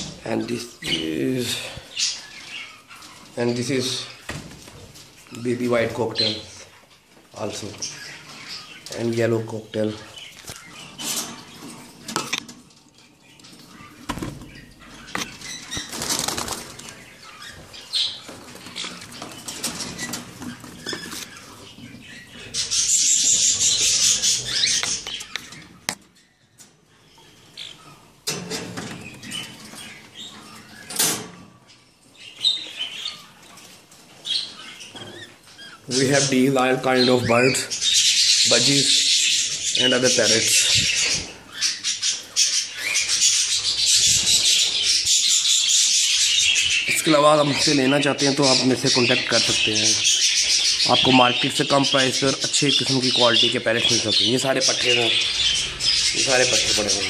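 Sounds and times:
birds flapping wings: 15.8s - 16.9s
bird chirps: 37.0s - 57.0s.

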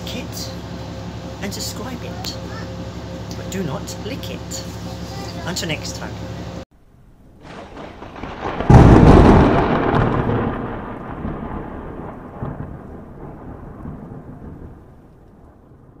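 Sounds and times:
thunderclap rumble and crash: 6.8s - 16.0s.

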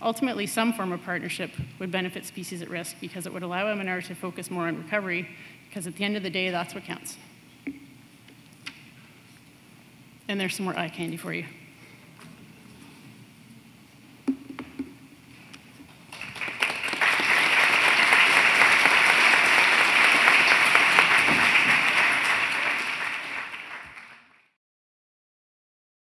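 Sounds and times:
audience applauding: 16.1s - 24.5s.

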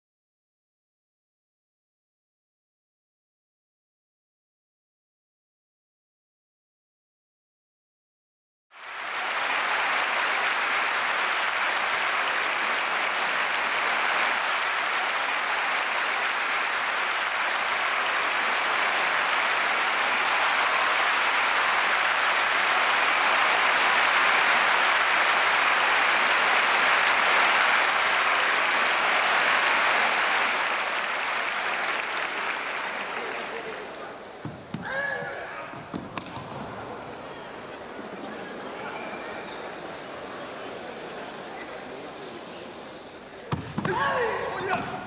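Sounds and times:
large audience applauding: 8.8s - 34.7s, 36.2s - 43.2s, 43.9s - 45.0s.

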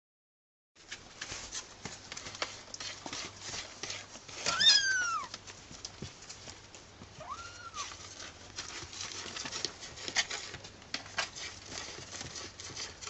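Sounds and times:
kittens scratching in litter: 0.8s - 13.0s
kitten mewing: 7.2s - 7.9s.

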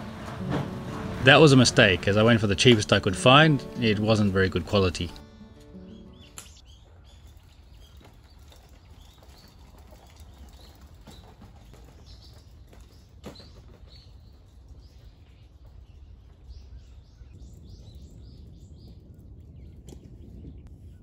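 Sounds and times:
small birds chirping: 4.1s - 21.0s.

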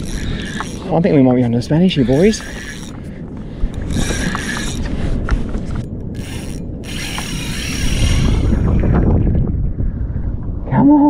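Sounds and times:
fishing reel drag ratcheting: 0.0s - 8.8s.

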